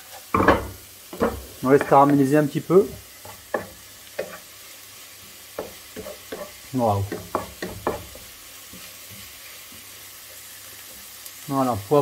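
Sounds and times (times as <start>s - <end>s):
wooden spatula scraping pan: 0.0s - 4.5s
vegetables sizzling in frying pan: 0.0s - 12.0s.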